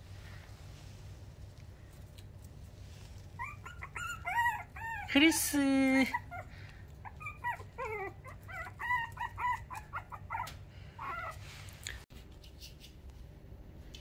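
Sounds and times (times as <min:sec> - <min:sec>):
puppy whining: 0:03.2 - 0:12.0.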